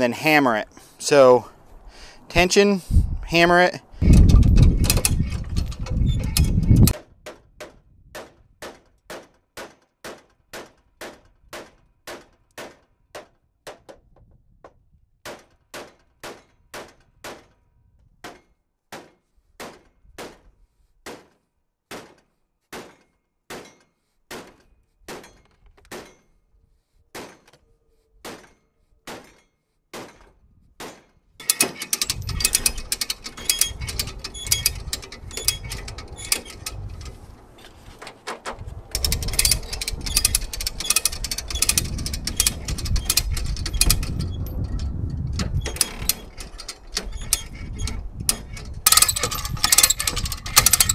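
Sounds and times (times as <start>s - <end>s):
dense rattling clatter: 4.0s - 7.0s, 31.4s - 50.9s
hammer striking steel: 21.9s - 26.3s.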